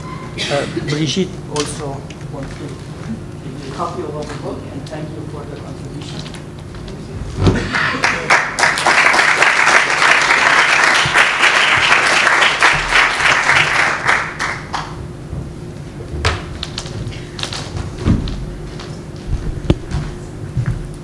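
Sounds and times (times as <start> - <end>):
audience applauding: 7.6 - 15.0.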